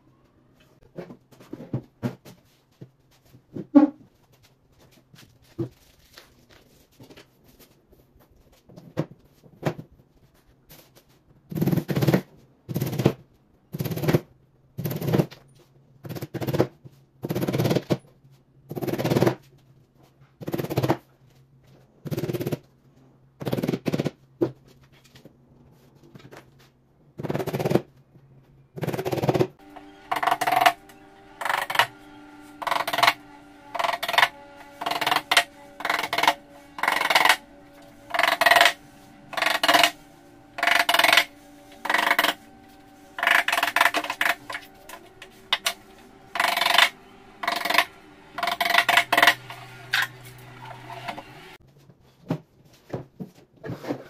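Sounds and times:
steady hum: 29.6 - 51.6.

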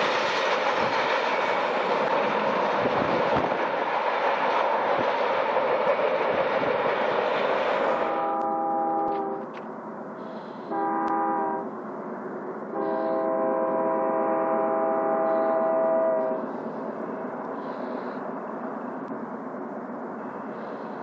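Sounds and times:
locomotive air horn blast: 8.0 - 9.5, 10.2 - 11.7, 12.7 - 16.6.

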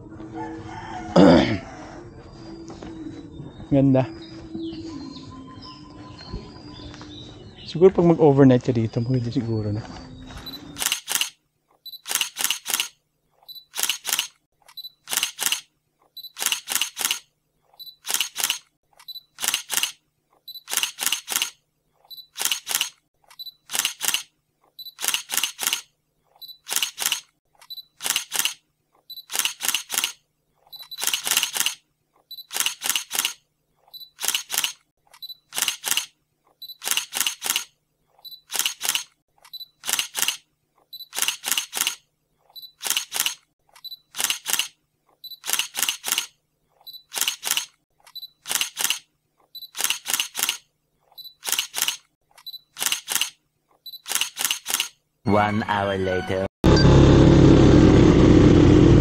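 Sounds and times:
camera shutter double clicks: 10.7 - 11.4, 12.0 - 13.0, 13.7 - 14.4, 15.0 - 15.7, 16.3 - 17.3, 18.0 - 18.7, 19.3 - 20.0, 20.6 - 21.6, 22.3 - 23.0, 23.6 - 24.3, 24.9 - 25.9, 26.6 - 27.3, 28.0 - 28.6, 29.2 - 30.2, 30.8 - 31.8, 32.4 - 33.4, 34.2 - 34.8, 35.5 - 36.1, 36.8 - 37.7, 38.5 - 39.1, 39.8 - 40.4, 41.0 - 42.0, 42.8 - 44.8, 45.4 - 46.3, 47.0 - 47.8, 48.4 - 49.1, 49.7 - 50.6, 51.4 - 52.0, 52.7 - 53.4, 54.0 - 55.0.

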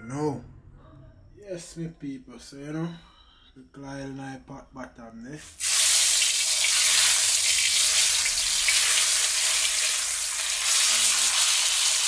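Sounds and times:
fish sizzling in hot oil: 5.5 - 12.0.

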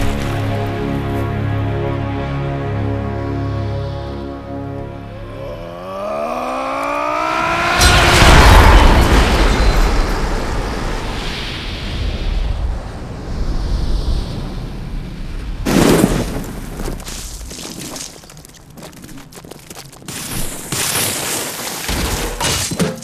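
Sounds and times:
rising tone: 4.0 - 12.5
sharp crashing hit: 7.5 - 12.3
deep rumbling boom: 7.5 - 15.6.

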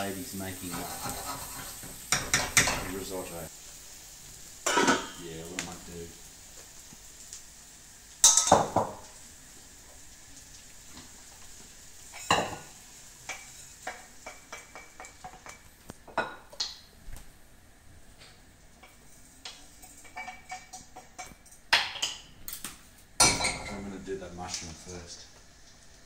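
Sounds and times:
metal utensil scraping a wok: 0.6 - 2.9.

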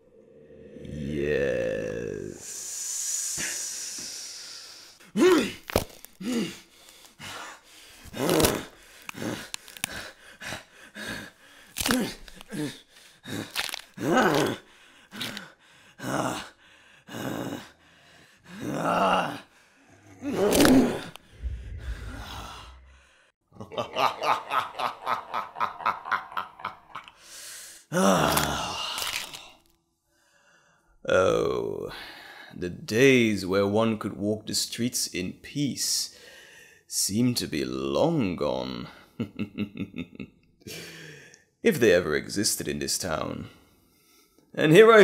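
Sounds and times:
man groaning in pain: 0.6 - 2.5, 5.2 - 5.6, 27.9 - 29.2
hiss: 2.4 - 5.0
low rumble: 21.2 - 23.3
man laughing: 23.6 - 27.1.

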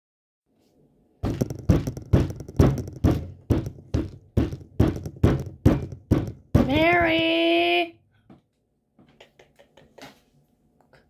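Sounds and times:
sharp thuds: 1.2 - 7.2.

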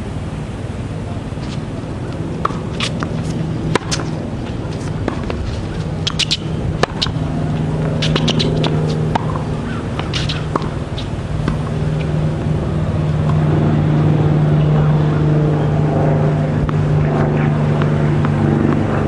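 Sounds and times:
low mechanical hum: 0.0 - 19.0
tennis ball strikes popping: 1.4 - 12.2, 13.2 - 13.4, 16.6 - 16.9, 17.8 - 18.9.

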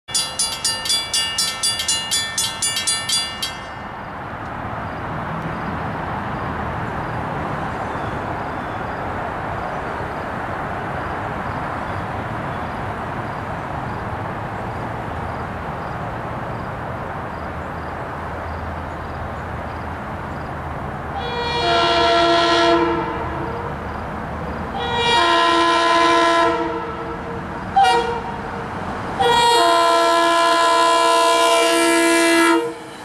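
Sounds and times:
crossing bell ringing: 0.1 - 4.2
approaching train rushing: 0.1 - 33.0.

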